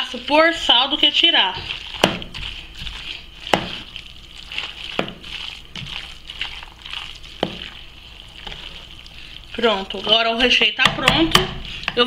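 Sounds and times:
spoon stirring wet filling: 0.0s - 12.0s
spoon knocking against pot: 10.8s - 12.0s.

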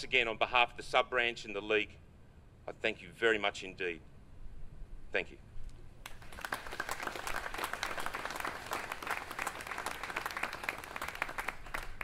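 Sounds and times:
audience applauding: 6.0s - 12.0s.

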